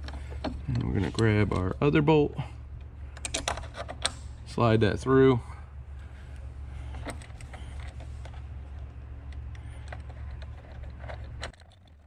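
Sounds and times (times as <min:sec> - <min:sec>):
steady low hum: 0:00.0 - 0:12.0
metal parts clicking and tapping: 0:03.1 - 0:04.2.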